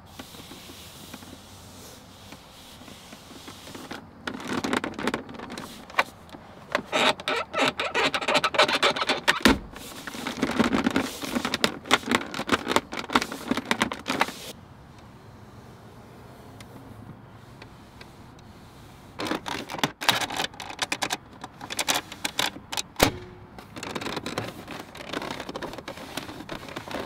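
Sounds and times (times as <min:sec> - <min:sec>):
plastic armrest creaking and clicking: 0:00.0 - 0:01.6, 0:02.2 - 0:14.6, 0:19.1 - 0:27.0
heavy thud: 0:23.0 - 0:23.6.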